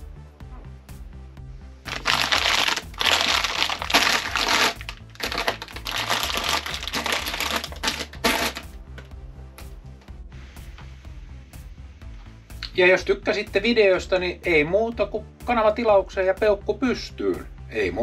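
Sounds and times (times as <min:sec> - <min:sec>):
soft background music: 0:00.0 - 0:18.0
plastic bags crinkling: 0:01.9 - 0:08.7.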